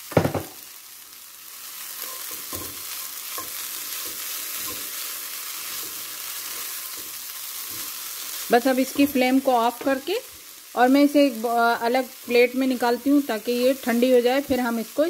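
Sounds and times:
food sizzling in frying pan: 0.0 - 15.0
spatula scraping pan: 1.9 - 10.6.

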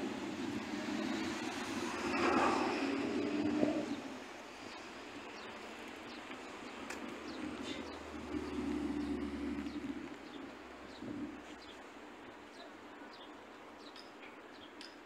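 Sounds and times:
vehicle passing: 0.0 - 11.5
street traffic hum: 0.0 - 15.0.

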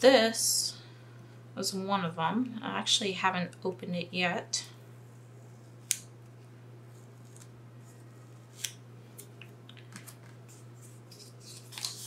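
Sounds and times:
plastic tape crackling and clicking: 6.9 - 7.5, 11.1 - 12.0.

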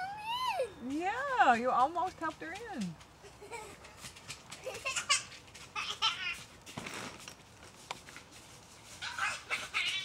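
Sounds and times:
child squealing and babbling: 0.0 - 0.8, 9.0 - 10.0.

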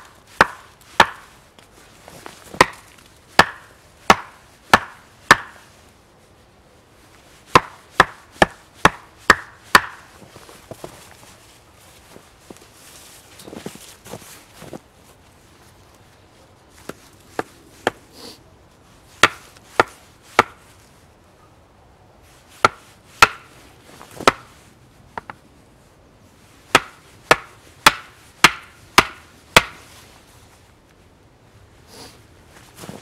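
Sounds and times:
hatchet striking wooden stake: 0.0 - 1.3, 2.5 - 5.6, 7.5 - 10.1, 19.2 - 20.6, 22.6 - 23.5, 24.2 - 24.5, 26.7 - 29.8.

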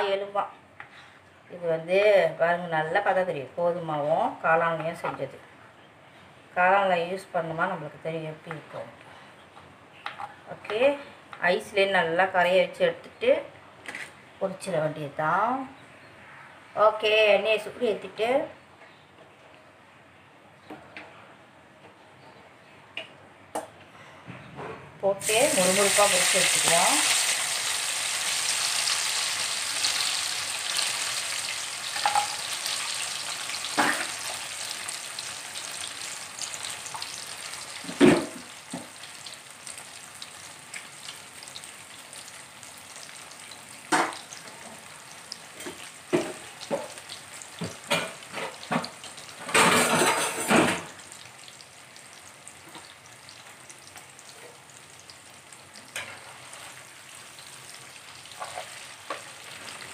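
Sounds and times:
food deep-frying in hot oil: 25.2 - 59.9.

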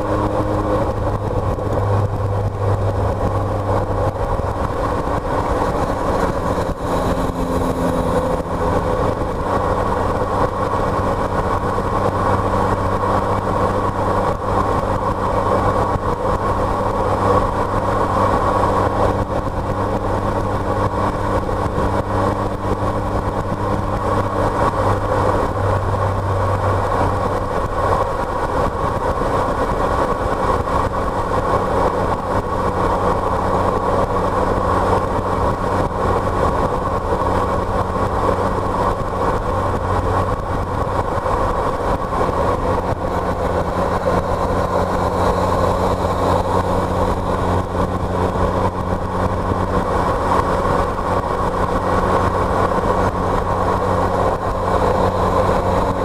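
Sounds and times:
car engine drone: 0.0 - 56.0.

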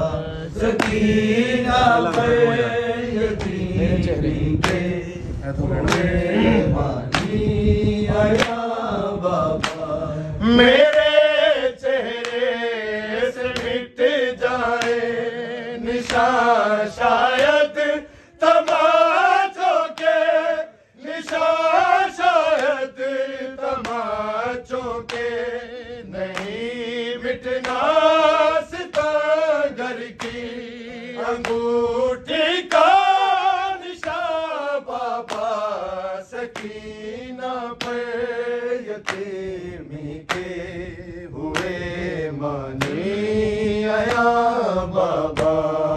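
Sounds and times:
man chanting a lament: 0.0 - 45.9
hands beating chest: 0.7 - 1.1, 4.6 - 5.0, 7.1 - 7.5, 9.6 - 9.9.

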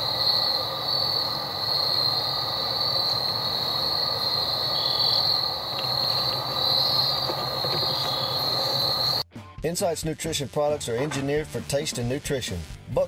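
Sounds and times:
insects droning: 0.0 - 9.2.

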